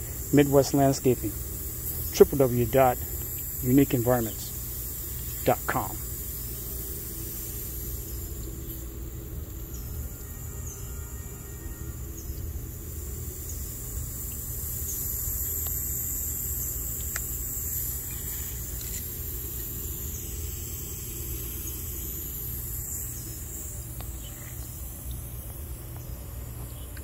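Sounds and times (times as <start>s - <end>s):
sprinkler spraying water: 0.0s - 27.0s.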